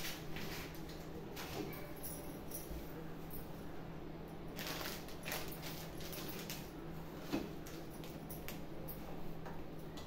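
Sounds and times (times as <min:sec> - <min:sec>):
steady low hum: 0:00.0 - 0:10.0
plastic packets crinkling: 0:04.6 - 0:06.8.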